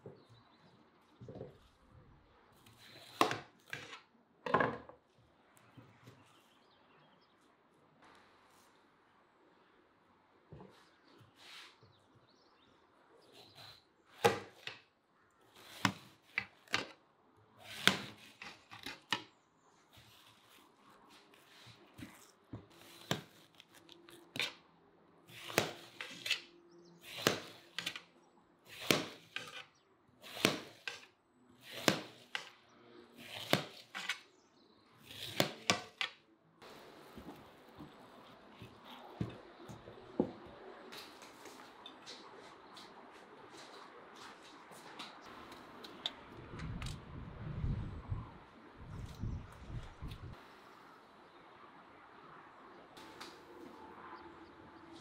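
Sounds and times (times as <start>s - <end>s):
knife cutting watermelon: 25.3s - 28.0s, 28.7s - 32.5s, 33.2s - 34.2s, 35.0s - 36.2s.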